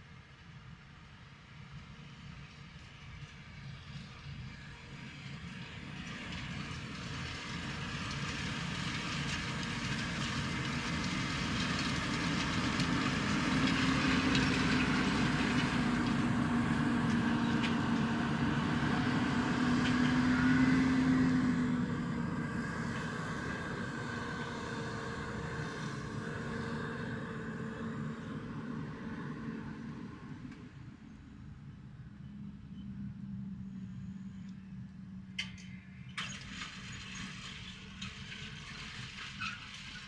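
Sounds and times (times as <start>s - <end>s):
tractor diesel engine under load: 0.0s - 40.0s.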